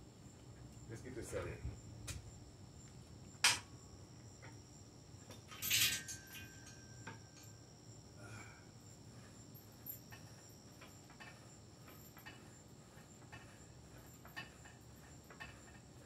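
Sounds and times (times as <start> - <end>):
metal chain clatter and jingle: 5.3 - 7.6, 9.5 - 12.4
metallic ring: 5.4 - 7.7, 9.2 - 16.0
faint clicks of cable machine: 10.1 - 16.0.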